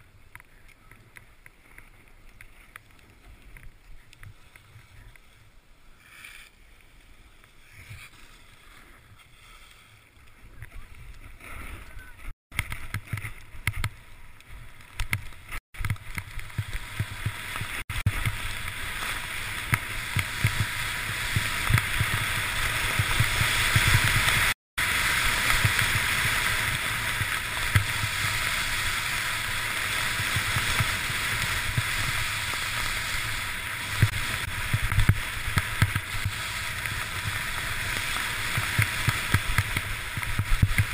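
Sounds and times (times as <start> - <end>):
snow hissing under skis: 16.3 - 40.9.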